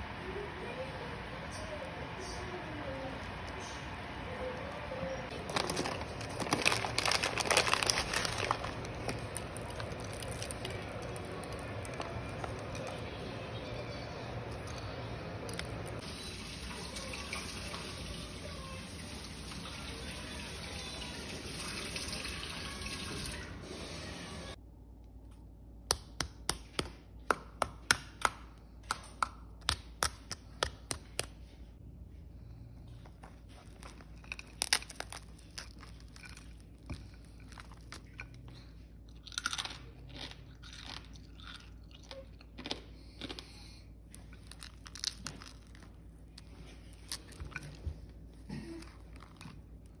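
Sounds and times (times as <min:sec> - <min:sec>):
crispy pork skin cracking: 0:05.3 - 0:13.0, 0:33.6 - 0:38.4, 0:44.1 - 0:47.8
meat crunching as torn apart: 0:05.5 - 0:12.8, 0:33.7 - 0:38.4, 0:44.1 - 0:47.8.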